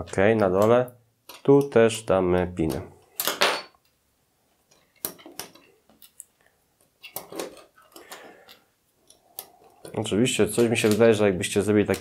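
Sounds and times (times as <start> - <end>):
plastic pieces clattering: 7.0 - 8.2.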